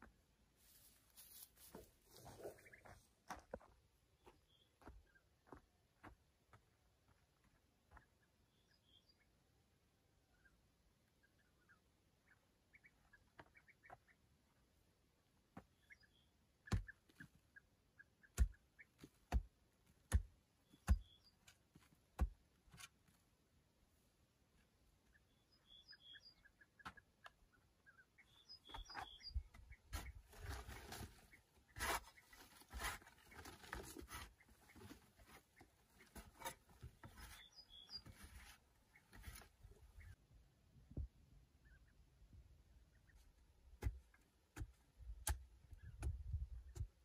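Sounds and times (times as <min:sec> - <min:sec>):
faint bird chirps: 0:07.9 - 0:09.5, 0:15.6 - 0:19.0, 0:20.6 - 0:21.6, 0:25.0 - 0:40.2
pick striking sandy clay: 0:18.3 - 0:21.2
soil scraping and crumbling: 0:29.9 - 0:35.4.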